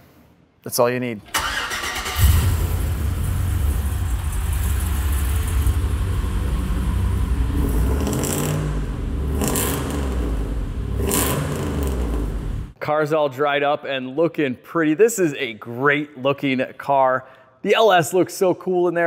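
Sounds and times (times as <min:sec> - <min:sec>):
car engine idling: 0:01.4 - 0:12.8.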